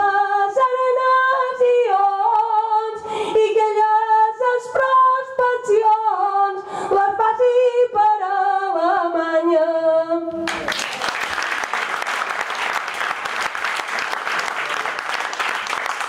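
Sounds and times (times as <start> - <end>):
woman singing unaccompanied: 0.0 - 10.4.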